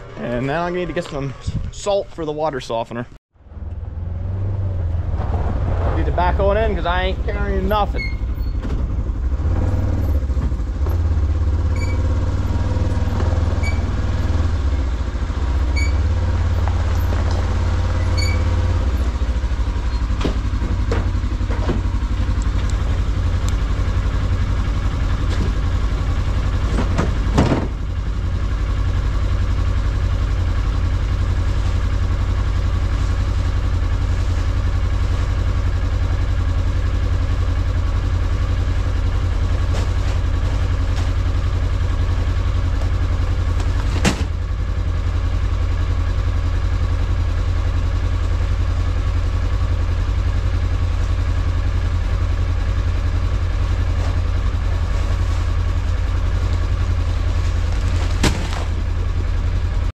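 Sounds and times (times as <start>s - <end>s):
truck engine idling: 0.0s - 59.9s
bag dropped into truck bed: 57.7s - 58.8s.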